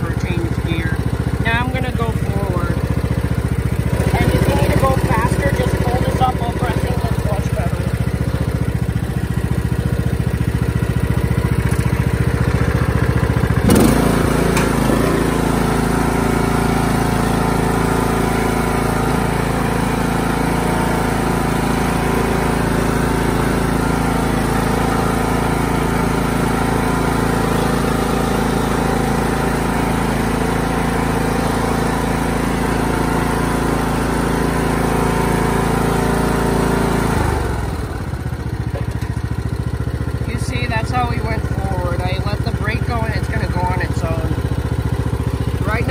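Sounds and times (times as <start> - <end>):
riding mower engine running: 0.0 - 45.9.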